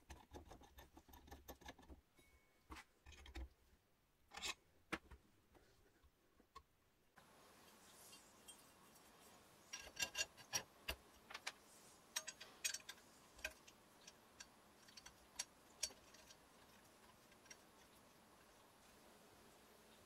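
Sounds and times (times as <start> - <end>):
metallic clicks of steel parts: 9.7 - 17.9.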